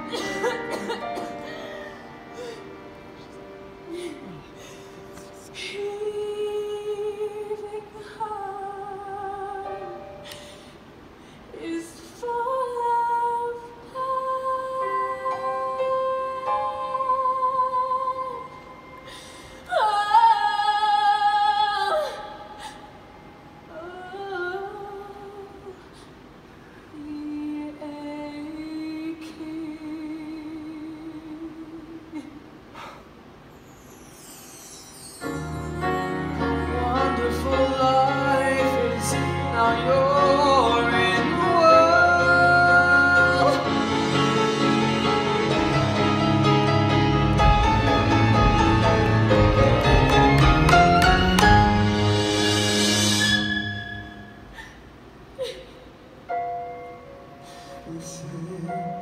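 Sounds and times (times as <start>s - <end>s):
woman singing long held notes: 3.8s - 10.4s, 11.5s - 23.0s, 35.3s - 44.2s.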